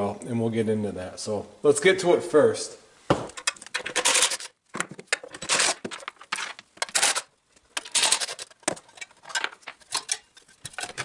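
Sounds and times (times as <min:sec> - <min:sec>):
metal clinks and scrapes: 0:03.4 - 0:11.0.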